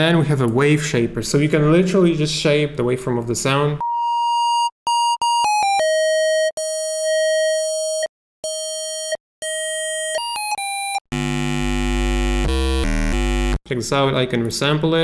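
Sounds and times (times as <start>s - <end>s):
distorted synth tone: 11.1s - 13.6s
loud low buzzy tone: 11.1s - 13.6s.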